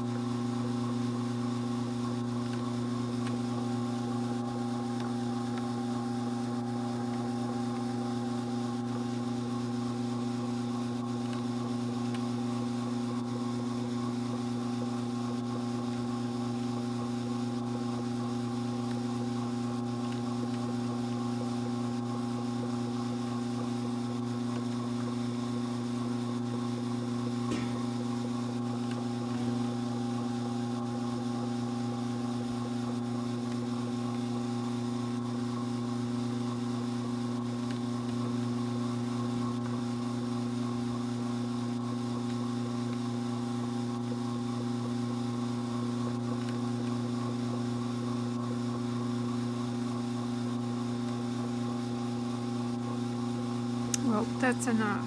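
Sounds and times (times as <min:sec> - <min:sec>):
drum carder motor hum: 0:00.0 - 0:36.1, 0:53.5 - 0:55.0.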